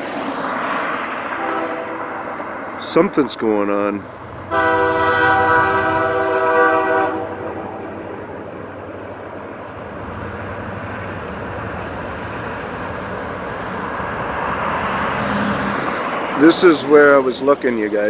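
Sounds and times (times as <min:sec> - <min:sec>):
train running rumble: 0:01.1 - 0:18.0
train horn chord: 0:01.4 - 0:02.4, 0:04.5 - 0:08.2.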